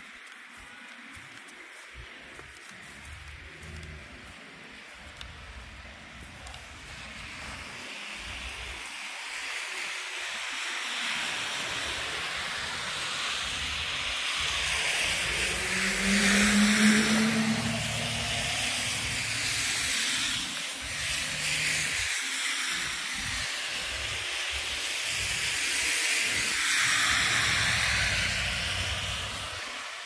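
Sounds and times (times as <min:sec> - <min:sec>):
tyres hissing on wet street: 0:00.0 - 0:30.0
engine hum: 0:13.4 - 0:22.1, 0:27.0 - 0:29.7.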